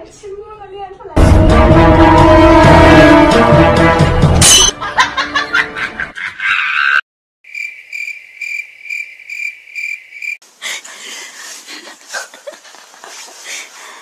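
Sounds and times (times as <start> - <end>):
cricket trilling: 7.5 - 10.6.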